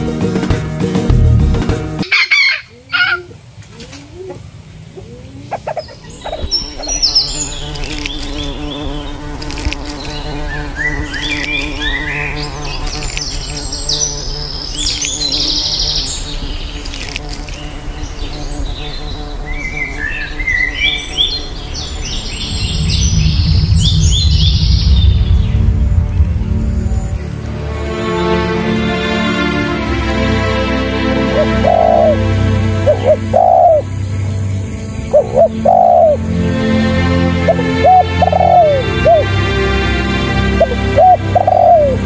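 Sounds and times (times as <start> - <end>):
deep low sound: 1.0 - 1.8, 21.6 - 28.6
small bird chirps: 5.0 - 9.3, 9.9 - 25.5
insect buzzing: 5.4 - 39.4, 40.0 - 42.0.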